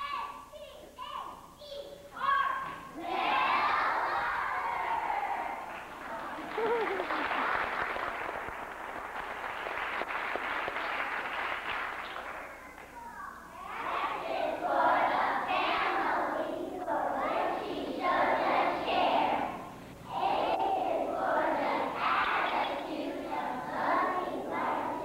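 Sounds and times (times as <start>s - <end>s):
children shouting a cheer: 2.2s - 7.4s
clapping and crowd noise: 4.1s - 13.1s.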